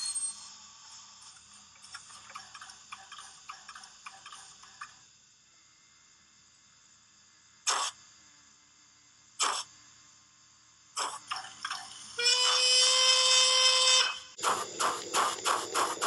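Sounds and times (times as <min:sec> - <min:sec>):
steam whistle blast: 0:12.2 - 0:14.3
steam hisses: 0:14.4 - 0:16.0.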